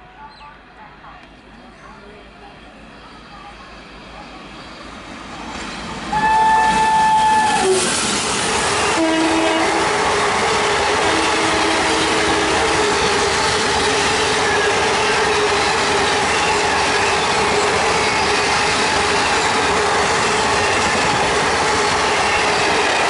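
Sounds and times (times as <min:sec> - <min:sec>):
train coaches rushing and clacking: 0:00.0 - 0:23.0
train horn blasts: 0:06.1 - 0:08.0, 0:08.8 - 0:10.1, 0:10.8 - 0:13.2.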